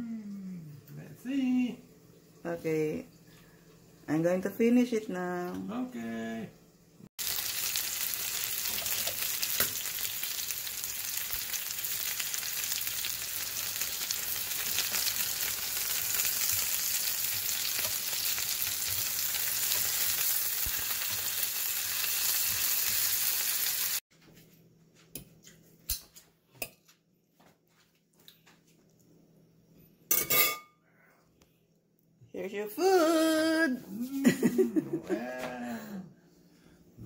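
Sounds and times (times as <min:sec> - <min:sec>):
chicken sizzling in oil: 0:07.2 - 0:24.0.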